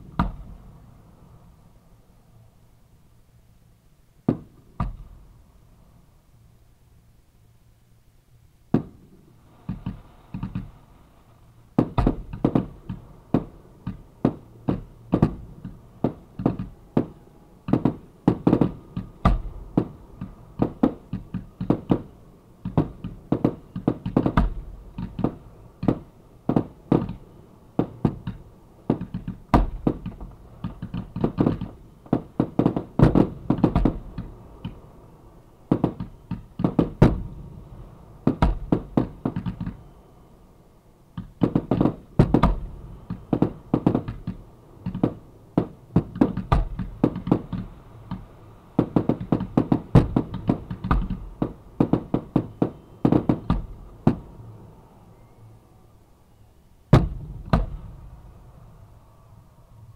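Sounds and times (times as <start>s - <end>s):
fireworks bangs: 4.2s - 5.3s, 8.7s - 11.0s, 11.7s - 40.3s, 41.1s - 54.8s, 56.9s - 58.7s.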